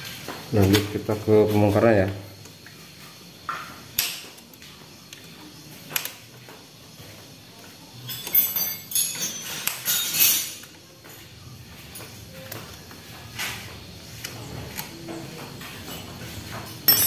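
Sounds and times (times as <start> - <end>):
metal tools clinking: 8.0 - 10.8, 14.8 - 17.0.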